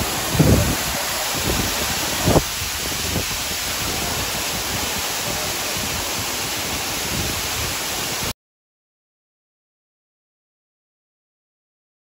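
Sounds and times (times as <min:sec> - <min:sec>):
waterfall roar: 0:00.0 - 0:08.3.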